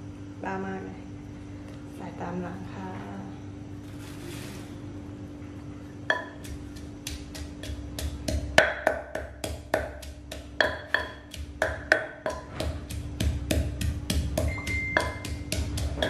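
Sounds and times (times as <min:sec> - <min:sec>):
pestle pounding in clay mortar: 0:06.1 - 0:16.0.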